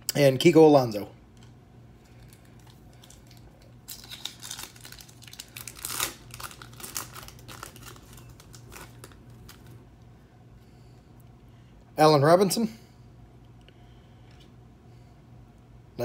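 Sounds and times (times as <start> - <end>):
foil wrapper tearing and crinkling: 2.2 - 9.7.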